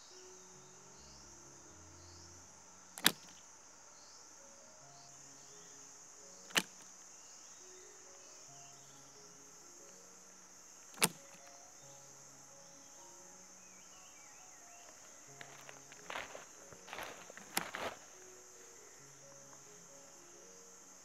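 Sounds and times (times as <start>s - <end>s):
faint background music: 0.0s - 21.0s
insects droning: 0.0s - 21.0s
sharp clicks: 3.0s - 3.5s, 6.5s - 6.9s, 10.8s - 11.6s.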